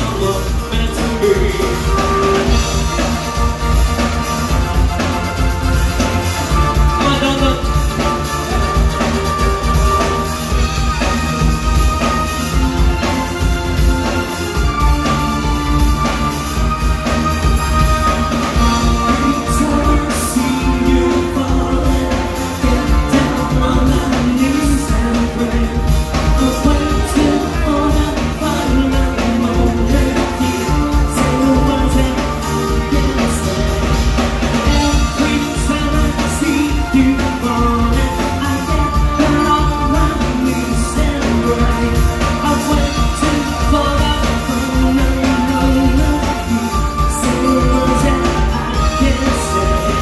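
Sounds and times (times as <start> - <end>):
man singing: 0.0 - 50.0
rock band playing: 0.0 - 50.0.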